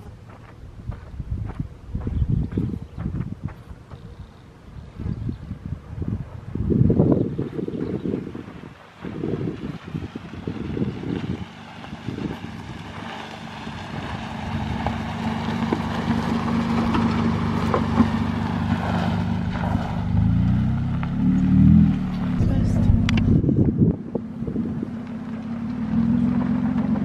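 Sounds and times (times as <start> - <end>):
vehicle driving on gravel: 0.0 - 27.0
wind on microphone: 0.6 - 13.1, 18.1 - 25.0.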